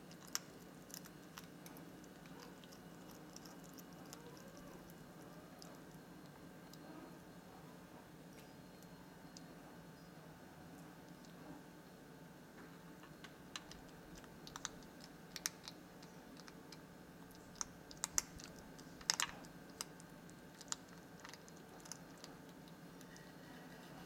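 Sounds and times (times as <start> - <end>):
hedgehog crunching kibble: 0.0 - 7.1, 13.4 - 24.0.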